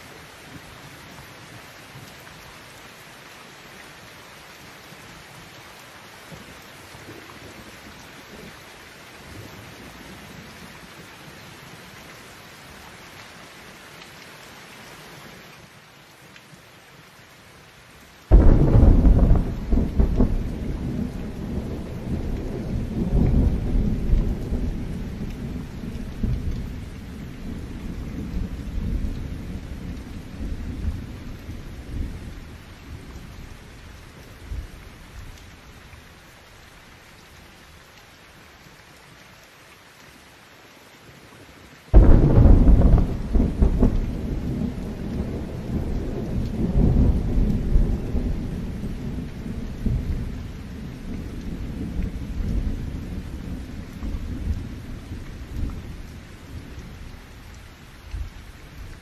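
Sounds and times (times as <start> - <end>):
heavy rain falling: 0.0 - 59.0
thunder clap and rumble: 18.3 - 33.6, 41.9 - 57.1.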